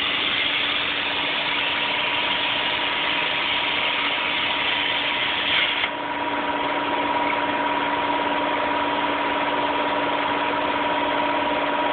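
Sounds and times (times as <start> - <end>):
plasma cutting arc hissing: 0.0 - 5.9
mechanical hum and hiss: 0.0 - 11.9.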